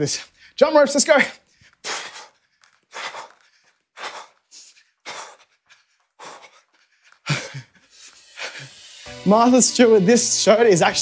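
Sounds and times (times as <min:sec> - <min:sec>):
man breathing hard: 0:01.4 - 0:08.8.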